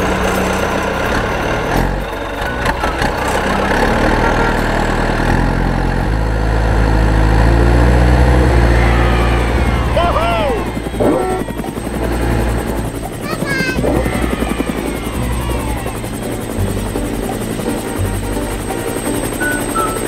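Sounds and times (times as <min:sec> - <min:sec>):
cartoon engine sound effect: 0:00.0 - 0:20.0.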